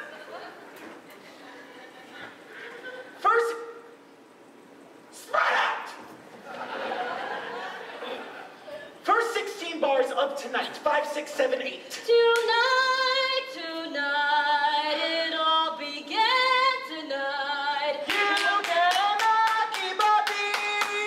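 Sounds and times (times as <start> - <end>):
hand claps: 18.1 - 21.0.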